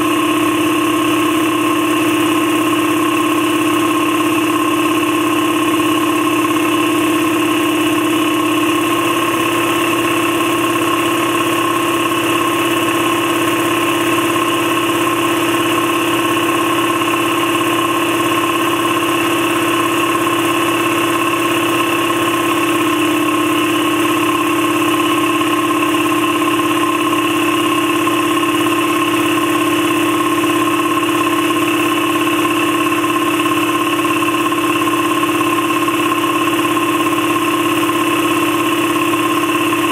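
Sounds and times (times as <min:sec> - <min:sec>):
air compressor running: 0:00.0 - 0:39.9.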